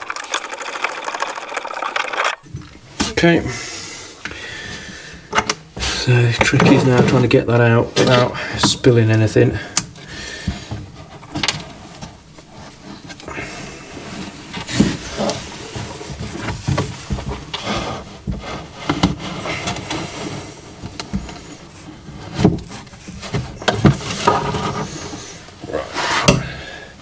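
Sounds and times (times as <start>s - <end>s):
plastic tub scraping and rubbing: 10.1s - 26.3s
plastic tub knocking and clunking: 22.2s - 24.8s.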